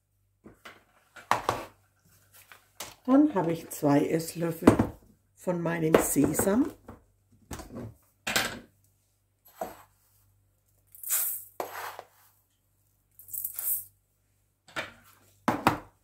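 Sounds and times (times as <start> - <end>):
seeds rattling into metal bowl: 13.2 - 13.9.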